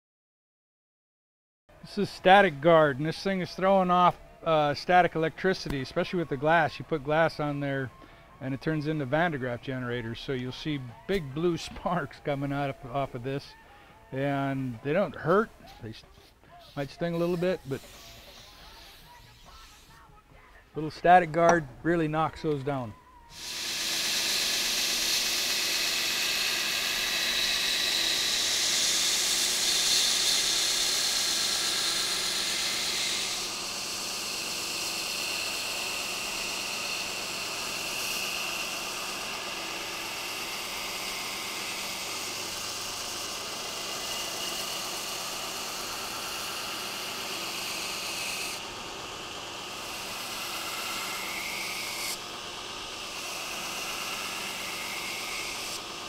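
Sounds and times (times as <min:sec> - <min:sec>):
belt grinder grinding steel: 0:14.2 - 0:20.0, 0:22.2 - 0:56.0.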